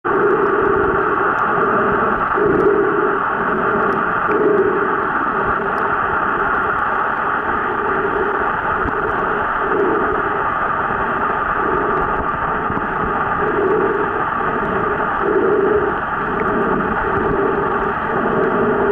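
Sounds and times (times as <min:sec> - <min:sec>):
underwater hiss: 0:00.1 - 0:18.9.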